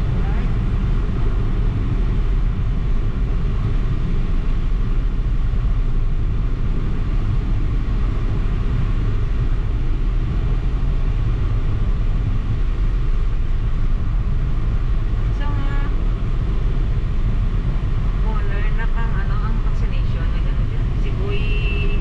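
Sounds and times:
car engine rumble: 0:00.0 - 0:22.0
road noise inside car: 0:00.0 - 0:22.0.

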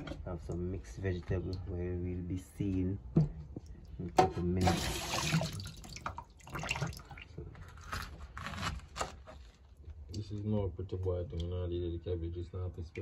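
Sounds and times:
water splashing in a steel sink: 0:04.5 - 0:07.4.

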